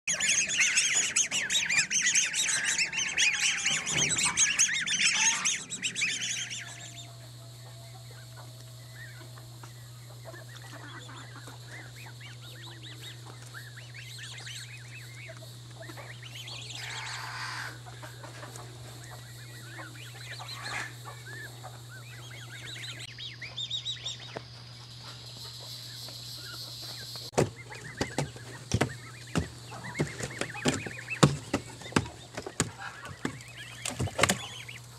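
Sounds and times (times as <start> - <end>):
cygnets calling: 0.0 - 34.9
steady low hum: 0.1 - 34.9.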